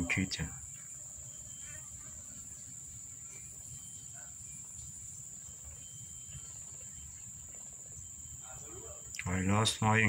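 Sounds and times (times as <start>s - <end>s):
high-pitched insect drone: 0.0s - 10.0s.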